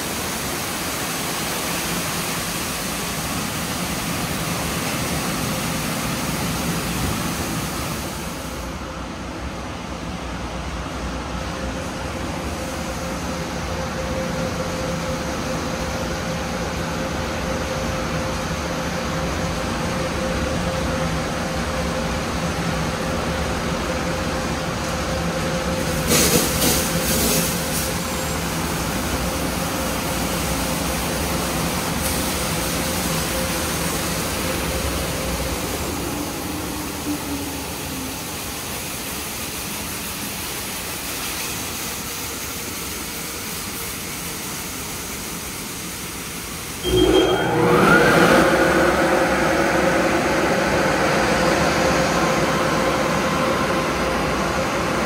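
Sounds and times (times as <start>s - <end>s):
machine hum: 46.8s - 55.0s.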